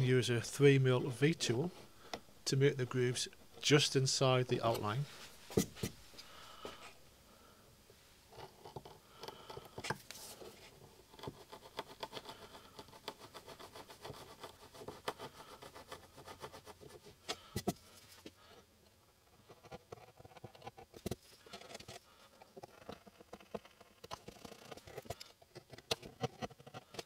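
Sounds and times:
chisel scraping wood: 8.3s - 17.7s, 19.4s - 27.0s.

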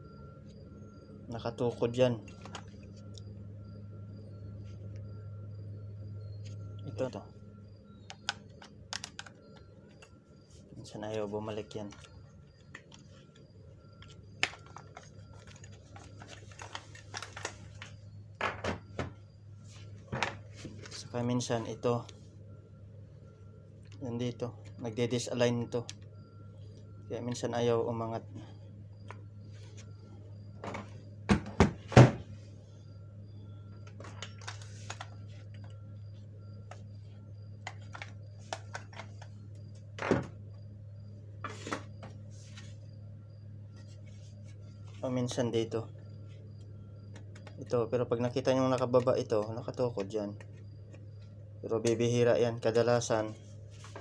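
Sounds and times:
low steady hum: 0.0s - 54.0s
plastic parts clicking: 8.1s - 10.0s.

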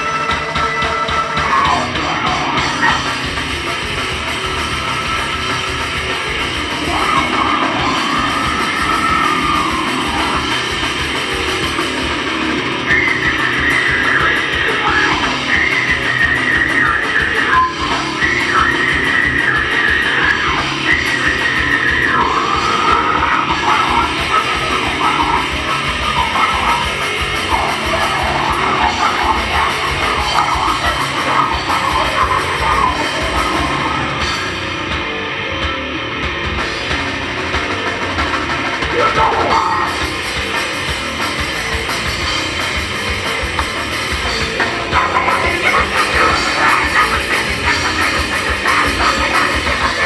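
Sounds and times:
distorted electric guitars: 0.0s - 50.0s
drums: 0.0s - 50.0s
person yelling vocals: 1.3s - 3.1s, 6.8s - 10.7s, 19.3s - 34.2s, 38.8s - 40.0s.

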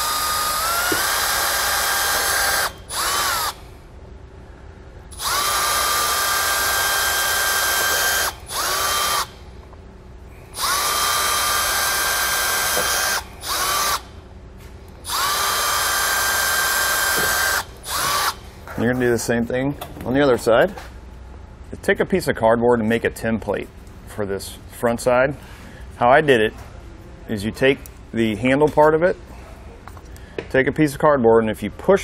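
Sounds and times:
cordless drill motor whining: 0.0s - 3.6s, 5.1s - 9.4s, 10.5s - 14.1s, 15.0s - 18.4s.

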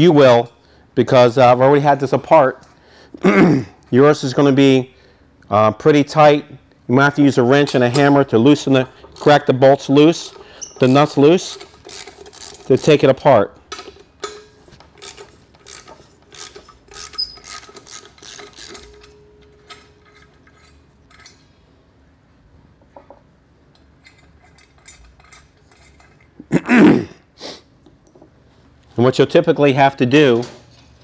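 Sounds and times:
ratchet wrench clicking: 10.3s - 13.0s, 13.9s - 19.1s.

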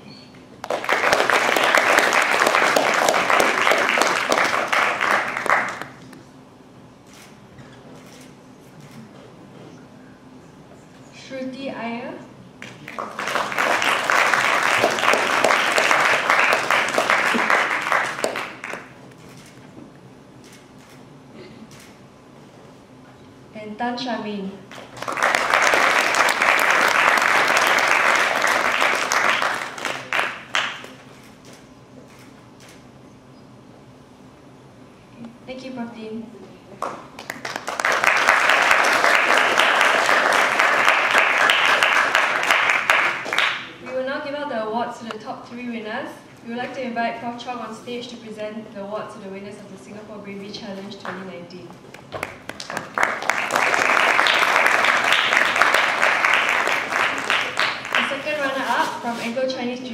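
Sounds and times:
audience applauding: 0.6s - 6.1s, 12.6s - 19.0s, 24.7s - 31.0s, 36.8s - 43.8s, 51.9s - 58.3s.

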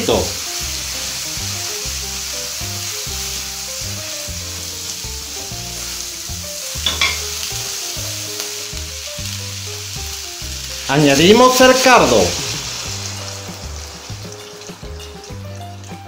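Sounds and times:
food sizzling in a pan: 0.0s - 16.0s
background music with steady beat: 12.4s - 16.0s.

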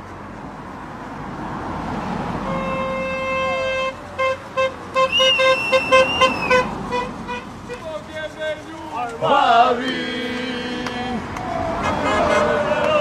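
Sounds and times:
car horn blasts and toots: 2.4s - 8.0s, 11.8s - 13.0s
high whistle-like tone: 5.0s - 6.6s.

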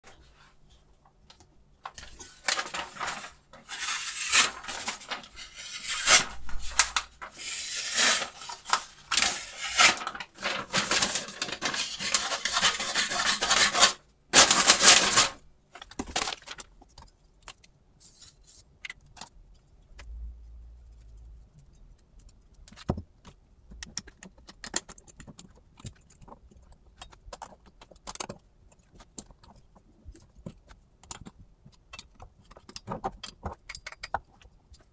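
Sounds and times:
paper crinkling as knife cuts: 1.9s - 15.4s.

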